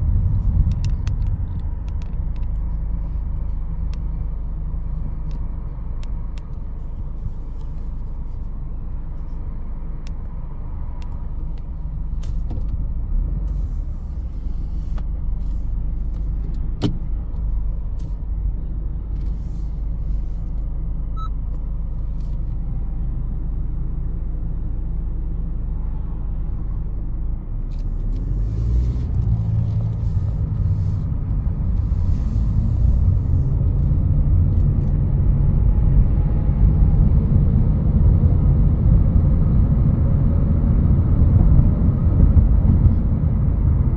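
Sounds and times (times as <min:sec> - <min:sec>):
car engine and road rumble: 0:00.0 - 0:43.9.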